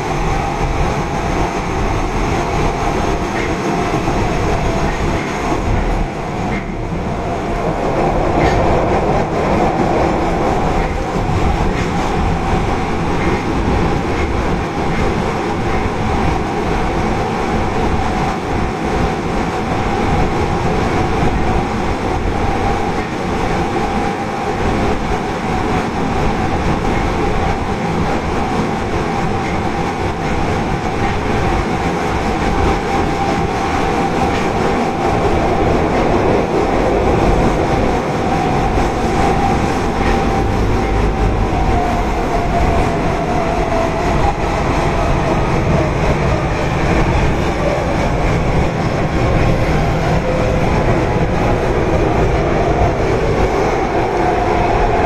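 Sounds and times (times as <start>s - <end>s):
subway inverter whine: 0.0s - 55.0s
wheels rumbling on rail: 0.0s - 55.0s.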